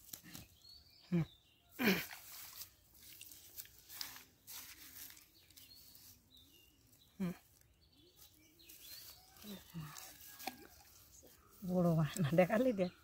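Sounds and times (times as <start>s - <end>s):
faint bird chirps: 4.5s - 13.0s.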